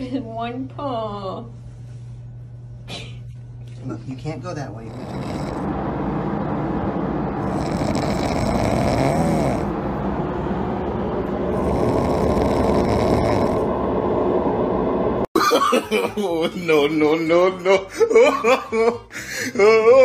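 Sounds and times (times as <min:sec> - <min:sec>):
puppy snoring: 0:04.8 - 0:05.7, 0:07.4 - 0:09.7, 0:11.5 - 0:13.7.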